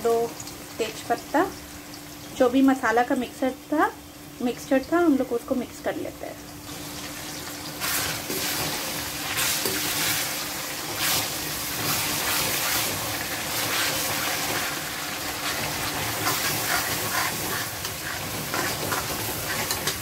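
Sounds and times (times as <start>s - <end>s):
onions and paste sizzling in oil: 0.0s - 20.0s
metal spoon scraping pan: 15.4s - 20.0s.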